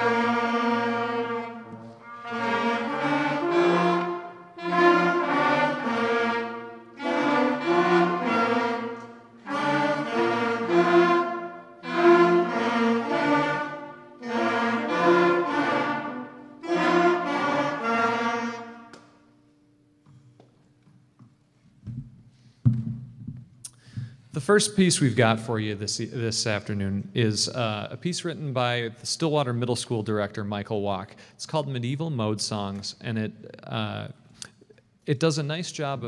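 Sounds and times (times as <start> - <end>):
concert band playing warm-up scale: 0.0 - 19.1.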